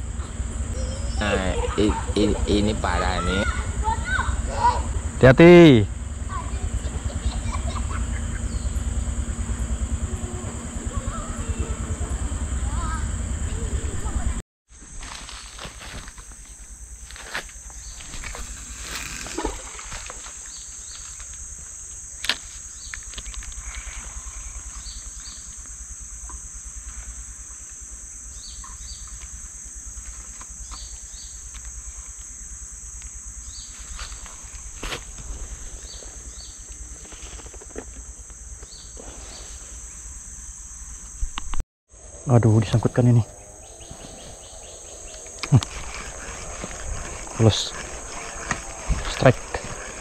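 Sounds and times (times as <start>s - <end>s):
high-pitched insect drone: 0.0s - 50.0s
paired chirps: 0.2s - 5.4s, 6.5s - 9.6s.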